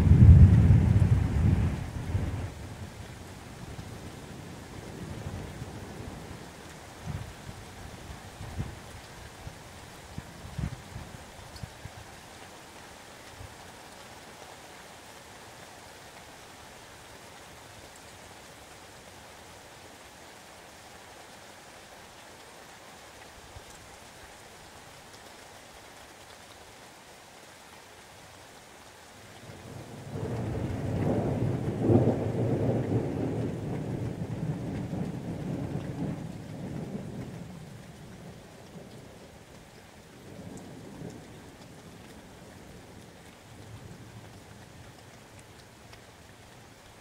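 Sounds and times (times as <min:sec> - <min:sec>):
thunder rumbling: 0:00.0 - 0:02.9, 0:29.8 - 0:37.6
steady rain falling: 0:00.0 - 0:47.0.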